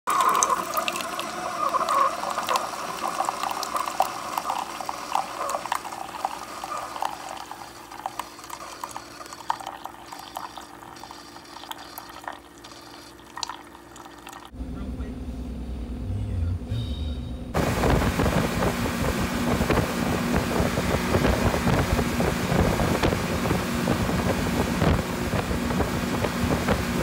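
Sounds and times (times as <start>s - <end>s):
coffee maker humming: 0.1s - 14.6s, 17.6s - 27.0s
coffee trickling into cup: 0.1s - 14.6s.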